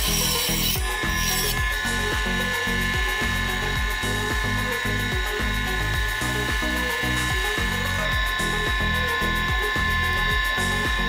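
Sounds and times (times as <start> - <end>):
background music with bass line: 0.0 - 11.0
table saw motor whining: 0.0 - 11.0.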